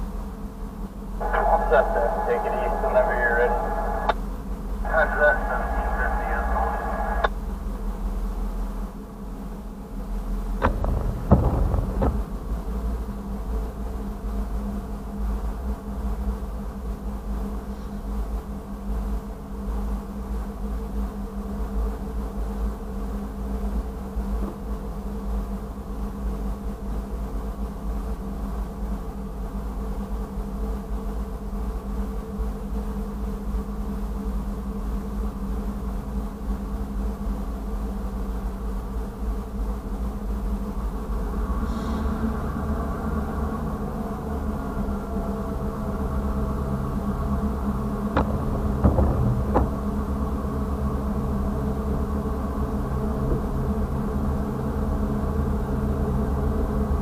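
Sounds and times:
diesel locomotive engine idling: 0.9s - 8.6s, 9.2s - 15.7s, 39.8s - 56.9s.

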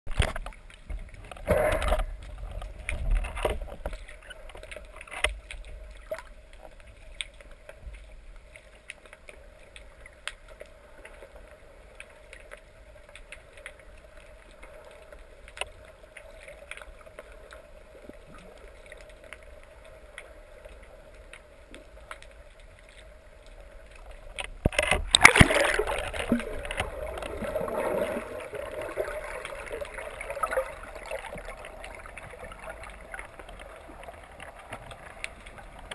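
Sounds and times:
faint clicks: 0.1s - 35.9s
churning water and bubbles: 14.0s - 35.9s.

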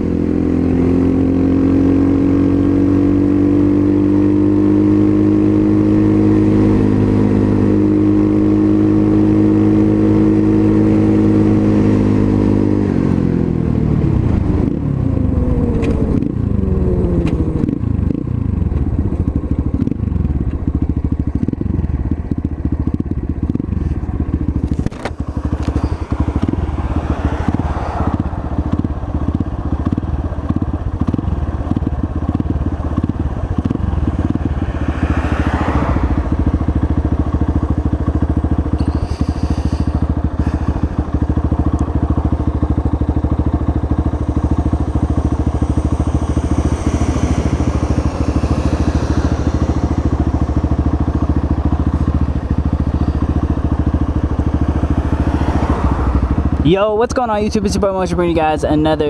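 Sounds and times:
dirt bike engine idling: 12.3s - 59.0s.

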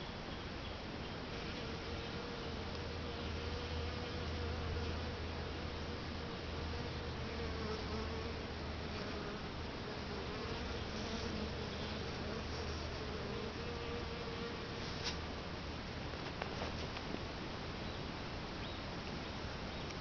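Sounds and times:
bees buzzing: 1.3s - 14.9s.

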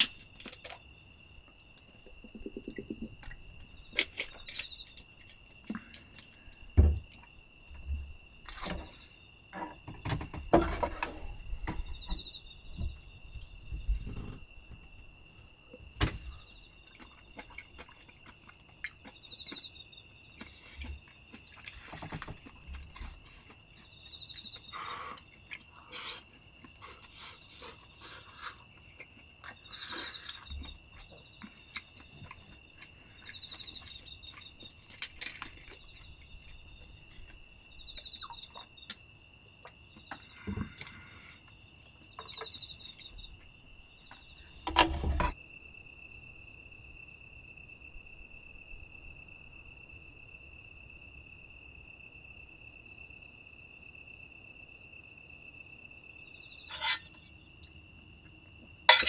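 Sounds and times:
crickets chirping: 0.0s - 59.0s
spoon scraping and tapping a bowl: 56.7s - 57.2s.

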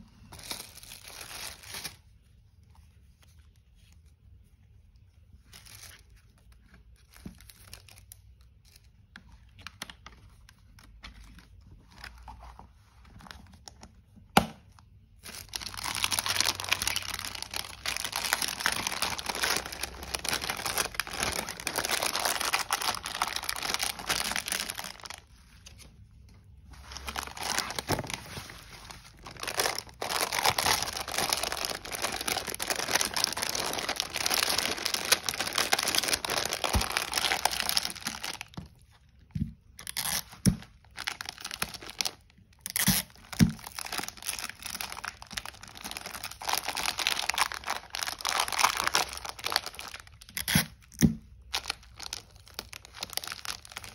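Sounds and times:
plastic bag crinkling: 15.2s - 25.9s, 26.6s - 39.0s, 39.8s - 50.8s, 51.4s - 53.9s.

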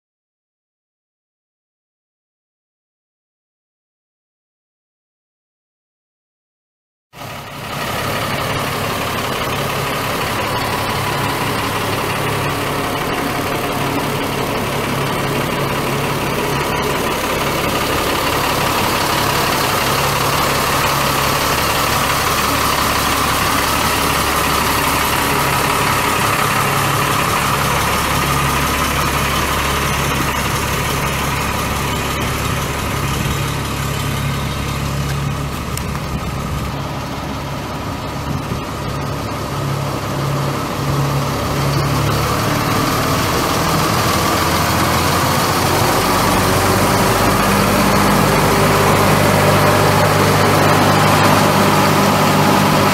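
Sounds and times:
diesel truck engine idling: 7.2s - 52.9s.

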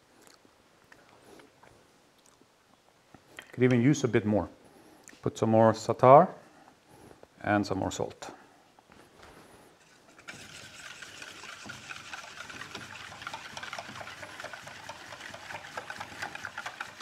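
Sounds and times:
liquid stirring in a bowl: 9.8s - 17.0s.

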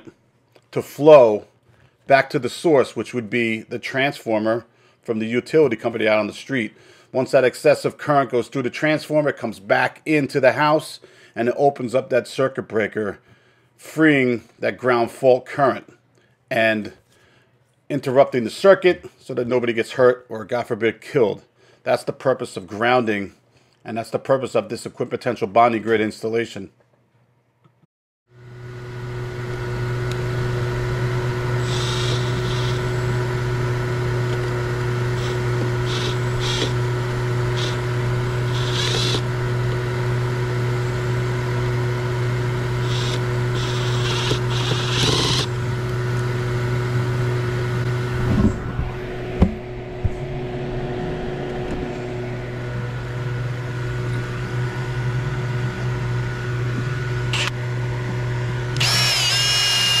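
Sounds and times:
low mechanical hum: 28.4s - 60.0s
cordless drill whining: 29.4s - 39.9s, 42.4s - 46.0s, 57.3s - 57.6s, 58.7s - 60.0s
cordless driver bursts: 31.5s - 33.3s, 34.2s - 39.8s, 42.6s - 45.6s, 57.3s - 57.6s, 58.7s - 60.0s.

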